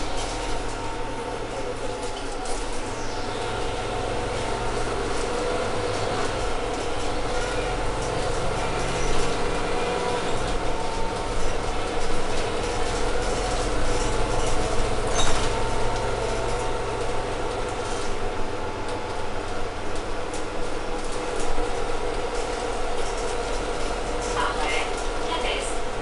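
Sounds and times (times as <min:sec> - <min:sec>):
bus engine drone: 0:00.0 - 0:26.0
road noise: 0:00.0 - 0:26.0.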